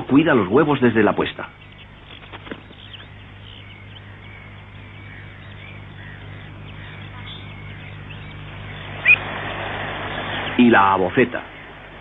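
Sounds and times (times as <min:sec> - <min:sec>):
gulls calling: 0:00.0 - 0:12.0
steady low hum: 0:00.0 - 0:12.0.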